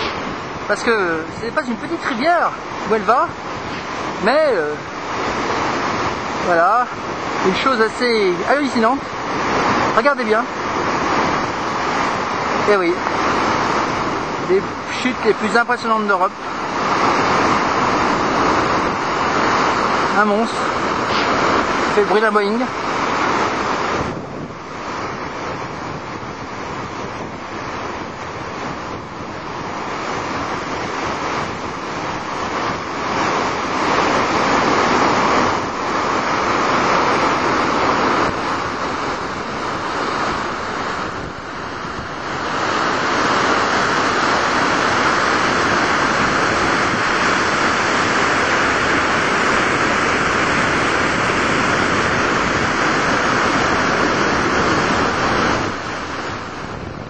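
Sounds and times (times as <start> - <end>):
waterfall roaring: 0.0 - 57.0.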